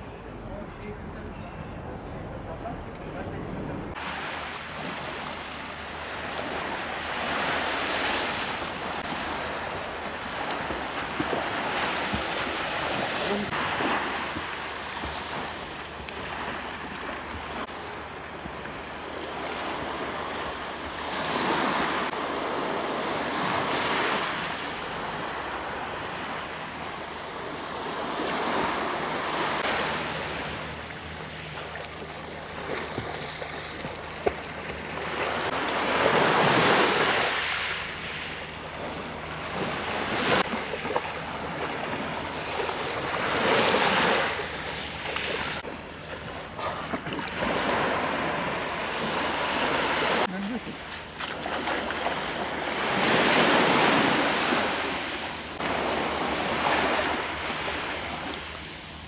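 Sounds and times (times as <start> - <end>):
swimmers splashing: 3.9 - 18.8
small waves breaking on shore: 3.9 - 59.0.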